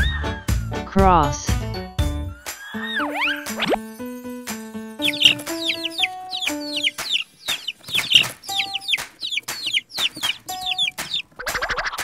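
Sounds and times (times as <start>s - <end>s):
simple children's tune: 0.0s - 12.0s
hen clucking: 5.0s - 12.0s.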